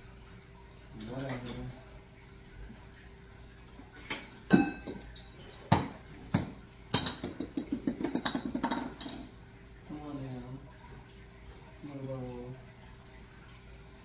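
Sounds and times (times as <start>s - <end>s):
objects knocking and clicking: 4.5s - 9.3s.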